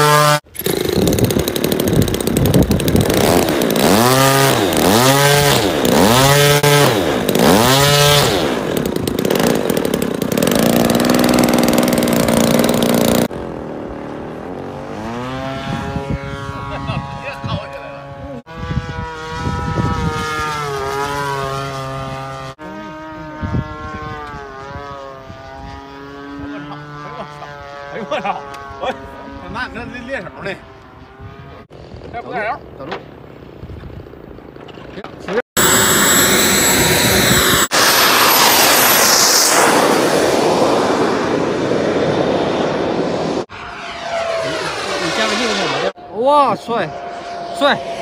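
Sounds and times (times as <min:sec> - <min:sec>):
model airplane motor droning: 0:00.0 - 0:31.6, 0:35.6 - 0:41.5.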